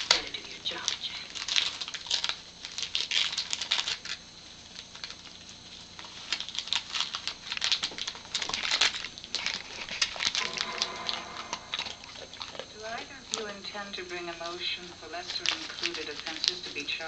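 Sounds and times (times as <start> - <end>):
wrapping paper crinkling and tearing: 0.0 - 13.5, 14.3 - 17.0.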